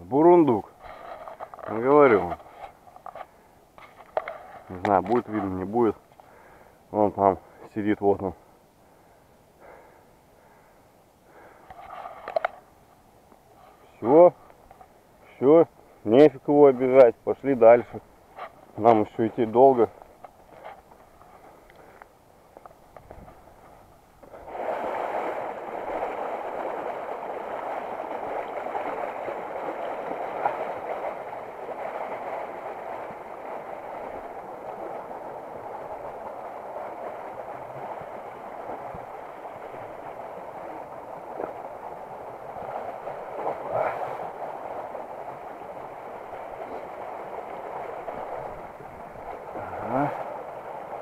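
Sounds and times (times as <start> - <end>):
river rushing over stones: 24.2 - 51.0.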